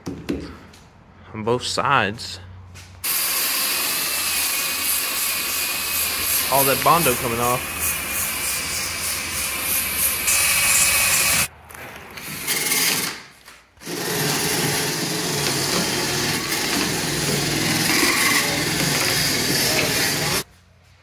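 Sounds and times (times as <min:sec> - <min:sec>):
power tool grinding filler: 0:03.0 - 0:11.5, 0:13.8 - 0:20.4.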